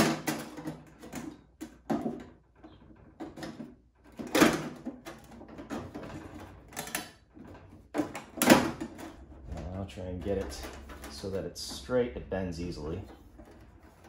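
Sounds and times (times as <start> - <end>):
sheet metal clicks and scrapes: 0.0 - 14.0.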